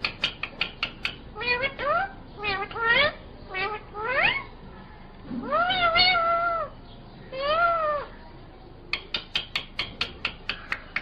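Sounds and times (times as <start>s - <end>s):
rapid sharp clicks: 0.0s - 1.2s, 9.0s - 11.0s
parakeet calling: 0.0s - 8.3s.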